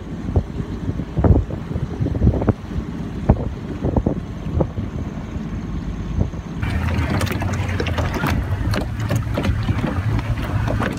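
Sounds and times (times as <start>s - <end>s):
boat engine rumbling: 0.0s - 10.9s
water lapping and splashing: 0.0s - 10.9s
wind on microphone: 0.0s - 10.9s.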